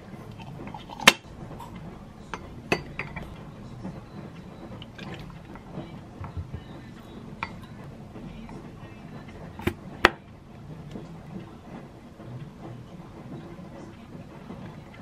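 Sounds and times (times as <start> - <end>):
spoon and bottles tapping glass: 2.3 - 3.4, 7.4 - 7.7.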